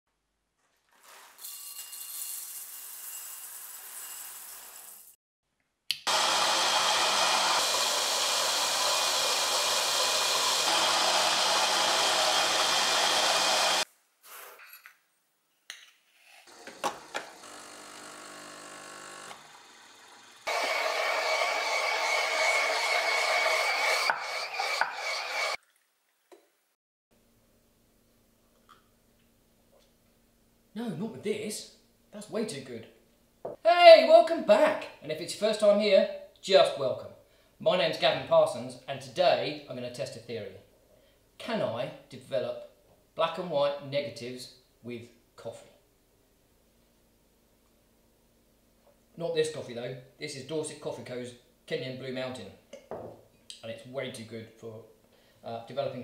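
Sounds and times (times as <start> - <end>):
electric coffee grinder running: 6.1 - 13.9, 16.5 - 25.6.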